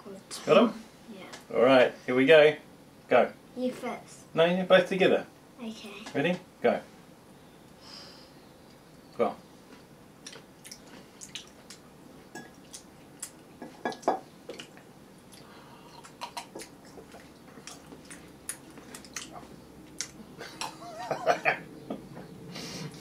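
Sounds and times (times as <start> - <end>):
person chewing: 10.2 - 20.7
person drinking water: 12.4 - 20.2.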